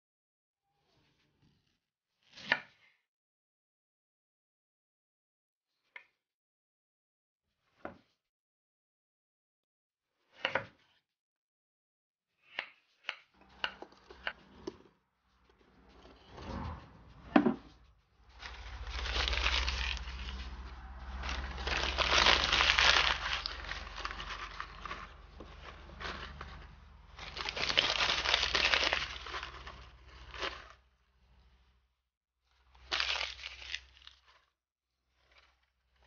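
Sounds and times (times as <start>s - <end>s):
newspaper crumpling and rustling: 18.3s - 30.8s, 32.8s - 34.4s.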